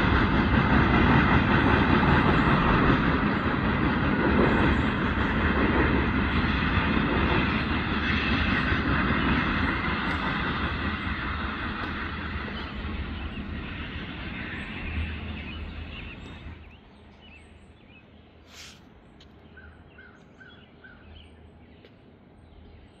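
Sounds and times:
freight train rolling rumble: 0.0 - 23.0
birds chirping: 8.5 - 23.0
brief hiss: 18.4 - 18.9.

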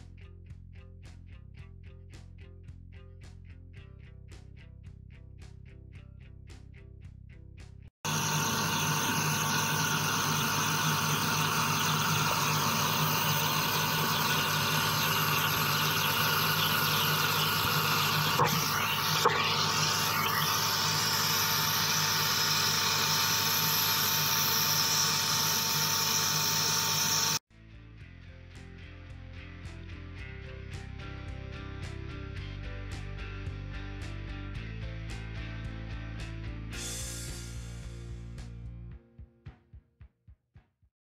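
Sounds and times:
machine hum: 8.0 - 27.4.

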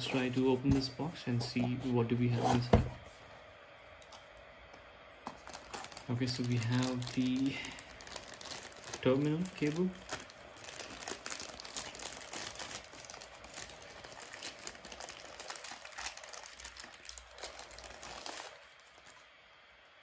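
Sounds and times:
plastic bag crinkling: 5.3 - 19.3.

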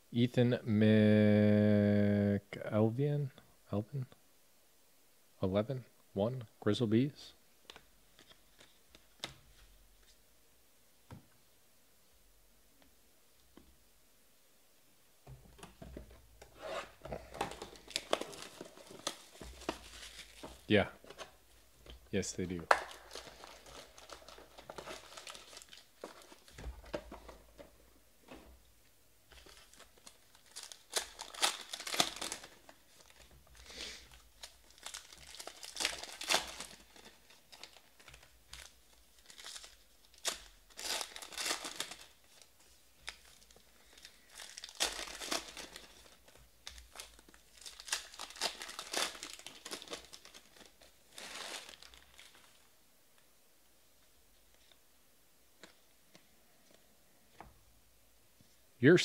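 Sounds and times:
foil wrappers tearing and crinkling: 22.8 - 26.6, 29.4 - 52.6.

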